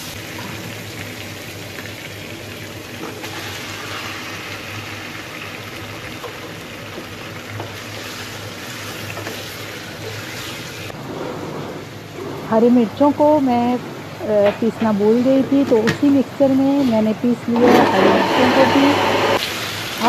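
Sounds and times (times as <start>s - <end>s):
chicken sizzling in hot oil: 0.0s - 11.0s, 18.4s - 20.0s.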